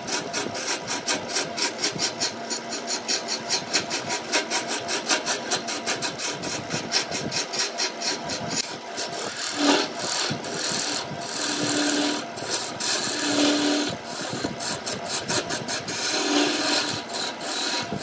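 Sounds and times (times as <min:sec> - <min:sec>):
gouge scraping spinning wood: 0:00.0 - 0:18.0.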